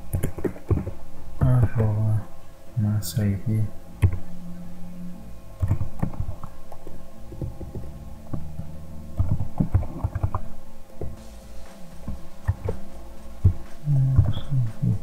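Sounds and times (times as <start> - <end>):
low steady hum: 0.0 - 15.0
keyboard typing: 5.6 - 6.4, 9.2 - 10.4.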